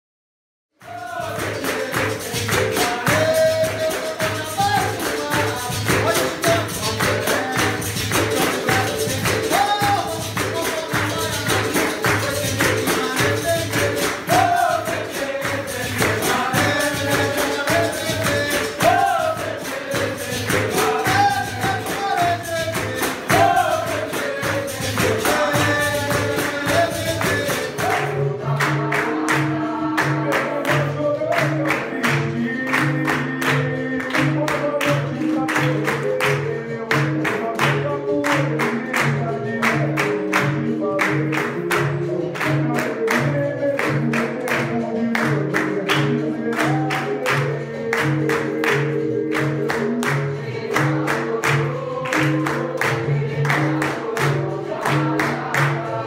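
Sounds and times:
person singing: 0.8 - 56.0
shakers rattling: 1.0 - 27.9.

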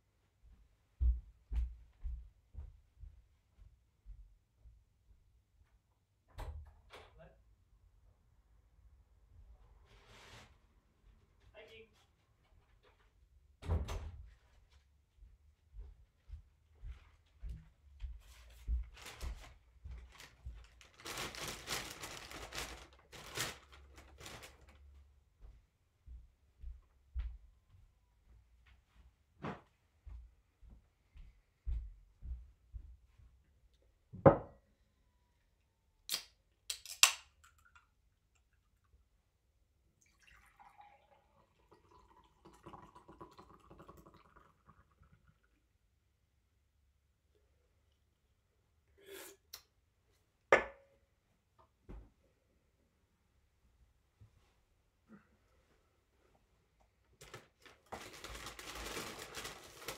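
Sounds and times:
paper bags rustling and crinkling: 18.8 - 25.0, 57.2 - 59.9.

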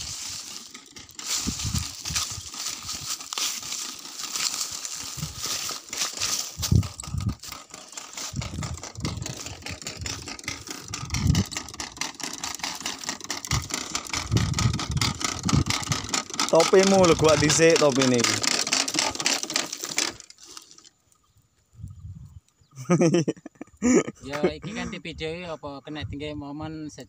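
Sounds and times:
dry stalks crunching underfoot: 0.0 - 20.9
light rattling: 0.0 - 20.9.

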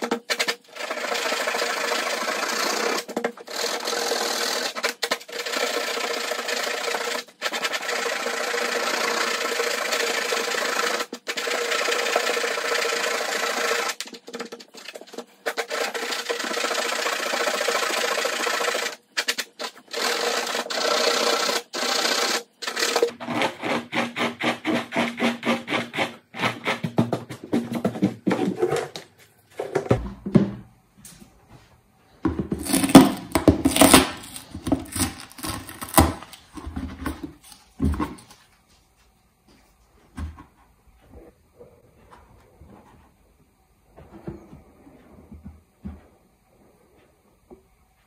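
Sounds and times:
scratchy rubbing on plastic: 22.6 - 29.0, 32.5 - 38.4
plastic bucket knocks: 29.6 - 30.7.

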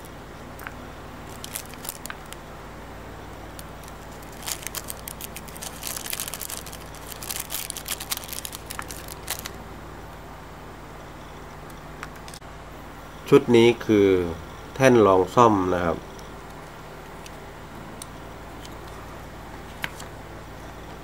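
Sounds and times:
steady low hum: 0.0 - 21.0
tissue paper crinkling: 1.3 - 2.3, 3.7 - 9.6.

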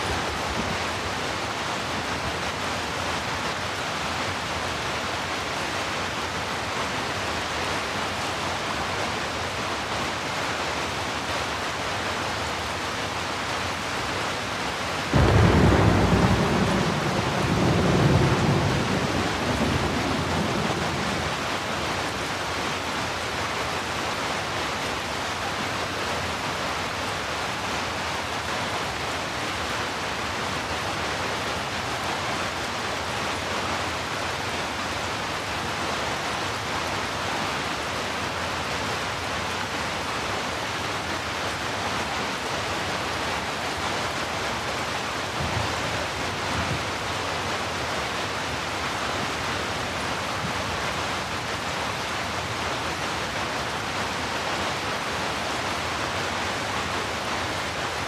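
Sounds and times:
heavy rain: 0.0 - 58.0
thunder rumble: 15.1 - 21.8.

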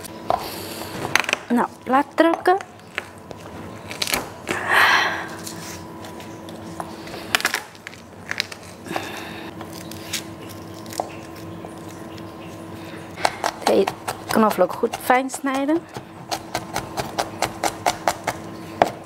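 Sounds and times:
cleaver crushing garlic: 13.2 - 19.0.

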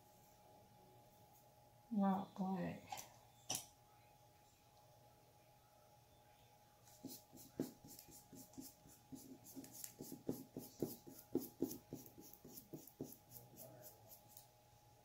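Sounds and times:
paintbrush scratching on rock: 6.9 - 14.4.

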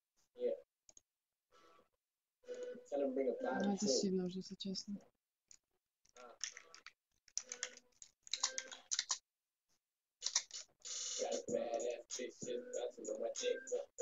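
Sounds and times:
woman's voice: 3.5 - 5.0
computer keyboard typing: 6.3 - 9.2, 10.2 - 10.7.

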